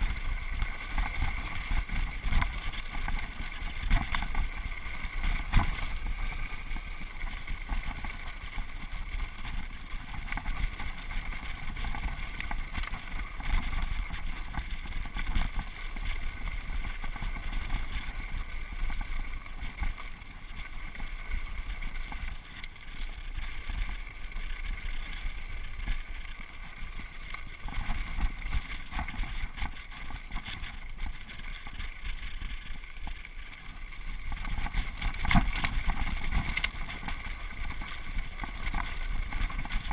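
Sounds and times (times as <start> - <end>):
bike rattling over stones: 0.0 - 39.9
bike tyre rumble: 0.0 - 39.9.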